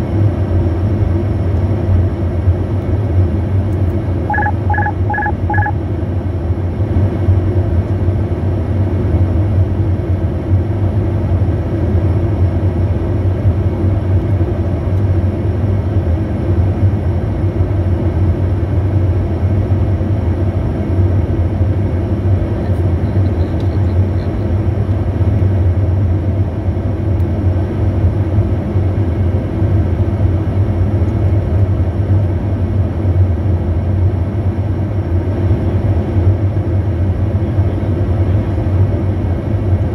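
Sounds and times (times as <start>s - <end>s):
jet cabin drone: 0.0s - 39.9s
two-tone beeps: 4.3s - 5.8s.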